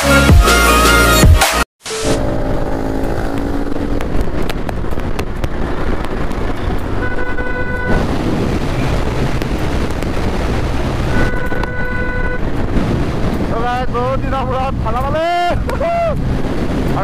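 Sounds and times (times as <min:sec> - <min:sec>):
motorcycle engine running: 0:02.0 - 0:17.0
wind rush: 0:02.2 - 0:17.0
horn sounding: 0:06.6 - 0:08.1, 0:11.0 - 0:12.6.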